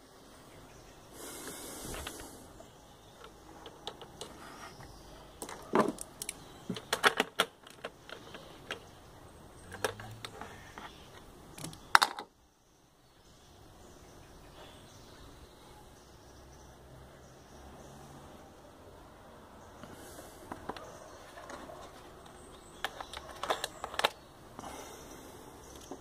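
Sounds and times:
hoses and plastic fittings rattling: 5.4 - 9.0, 20.4 - 24.8.

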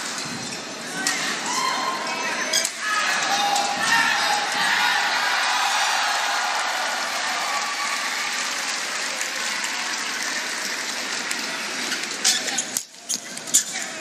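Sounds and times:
crowd cheering and clapping: 3.2 - 12.2.

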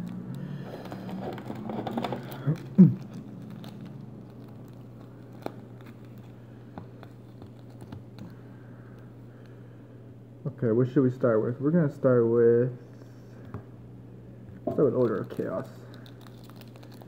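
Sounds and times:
foil packs crinkling: 0.0 - 8.4, 14.8 - 17.0.

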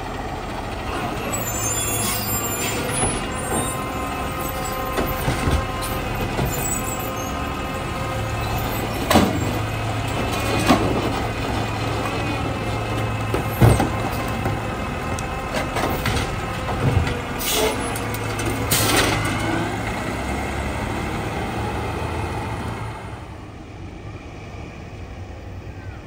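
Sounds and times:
garbage truck diesel engine: 0.0 - 26.0
cart knocking down: 4.6 - 6.9, 8.6 - 11.7, 13.2 - 14.7.

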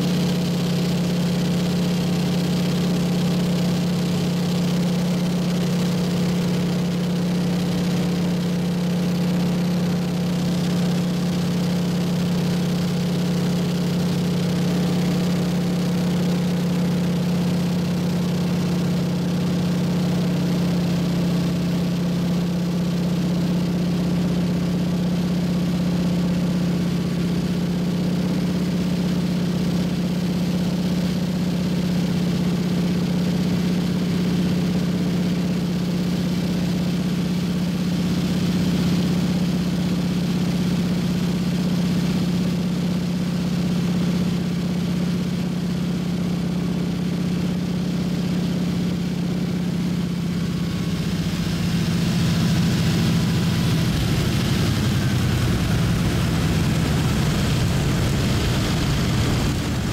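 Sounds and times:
plane engine droning: 49.6 - 59.9.

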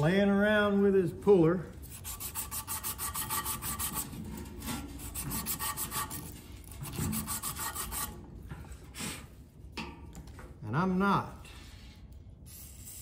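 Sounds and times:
sandpaper scraping rusty shaft: 1.8 - 8.2.

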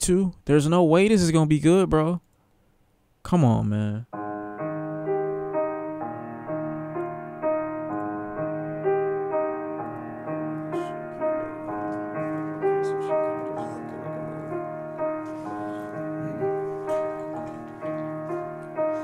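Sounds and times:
solo piano: 4.1 - 19.0.

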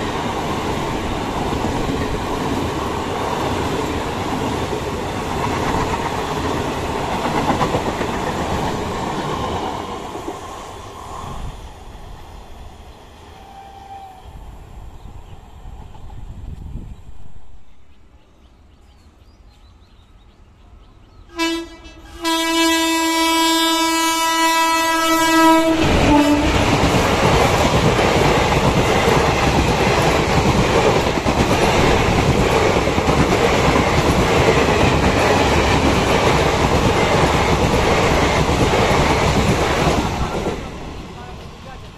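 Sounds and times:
train wheels rumbling on rails: 0.0 - 18.0, 24.3 - 41.9
train horn: 13.4 - 14.3, 21.3 - 26.8.

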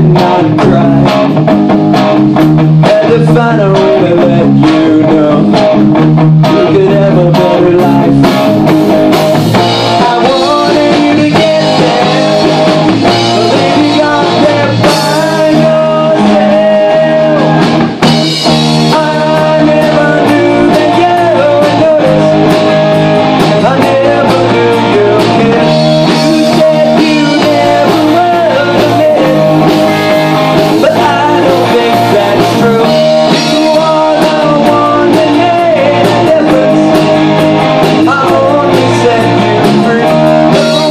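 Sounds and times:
person singing: 0.0 - 1.3, 2.8 - 5.8, 6.4 - 8.5, 9.7 - 18.0, 18.8 - 40.9
bass guitar: 0.0 - 40.9
drum kit: 0.0 - 40.9
electric guitar: 0.0 - 40.9.

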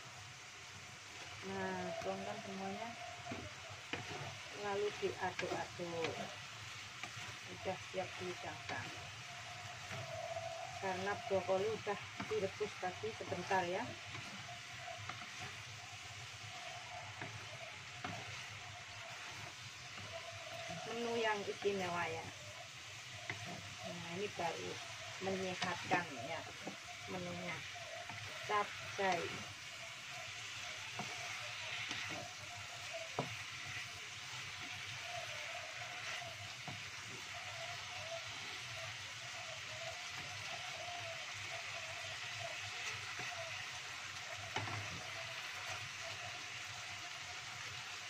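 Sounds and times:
food sizzling in a wok: 0.0 - 48.0.

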